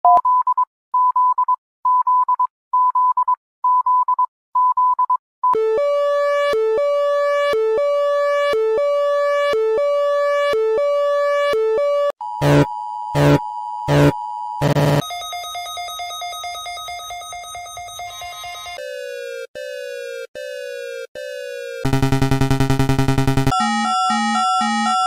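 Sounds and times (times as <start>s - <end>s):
buzzy two-pitch alarm: 12.4s - 15.0s, 21.8s - 25.0s
steady alert tone: 12.4s - 15.0s, 21.8s - 23.8s.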